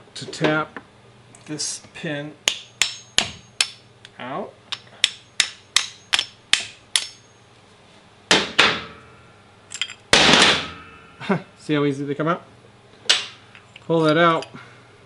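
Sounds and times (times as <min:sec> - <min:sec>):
hammer tapping metal: 0:02.4 - 0:03.8, 0:04.7 - 0:07.4.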